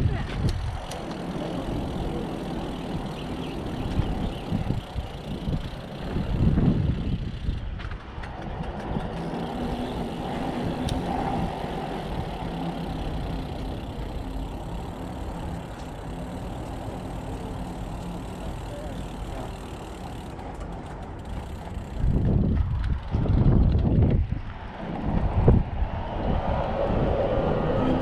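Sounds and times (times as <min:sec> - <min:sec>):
vehicle engine running: 0:00.6 - 0:07.7, 0:08.8 - 0:23.8.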